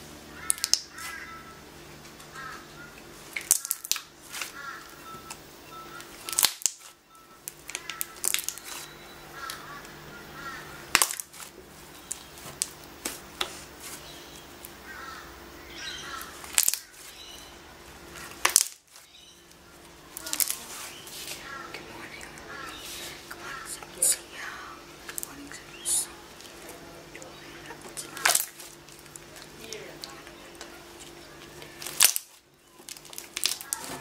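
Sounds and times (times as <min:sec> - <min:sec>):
slime clicking and popping: 0:00.5 - 0:00.9, 0:03.4 - 0:04.1, 0:06.3 - 0:06.9, 0:07.5 - 0:08.8, 0:18.4 - 0:18.8, 0:31.8 - 0:33.9.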